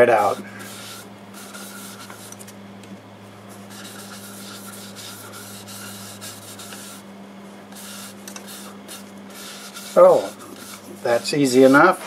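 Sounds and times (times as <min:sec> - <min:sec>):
cloth wiping on wood: 0:07.8 - 0:12.0.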